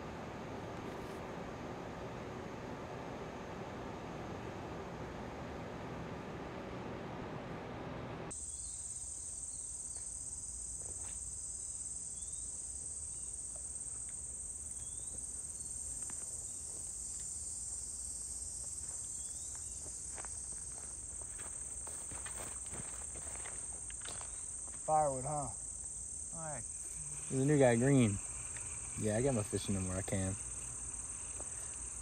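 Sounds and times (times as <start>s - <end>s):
steady hiss: 8.2s - 32.0s
chorus of insects: 8.3s - 32.0s.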